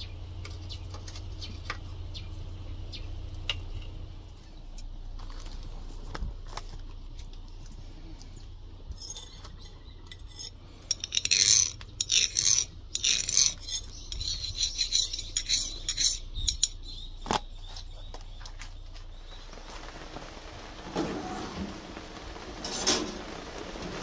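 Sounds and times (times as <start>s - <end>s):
steel tool scraping knife blade: 9.0s - 9.4s, 10.1s - 16.8s.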